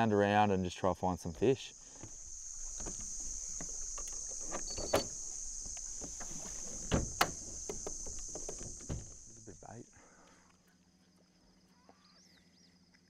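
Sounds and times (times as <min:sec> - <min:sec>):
high-pitched insect chorus: 0:00.0 - 0:12.6
light knocks and clicks: 0:01.9 - 0:09.4.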